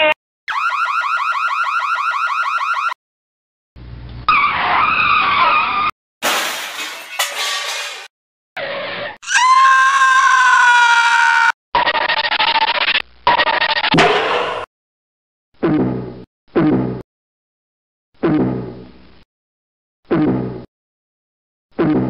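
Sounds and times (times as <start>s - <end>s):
car brakes and skidding tyres: 4.3s - 5.9s.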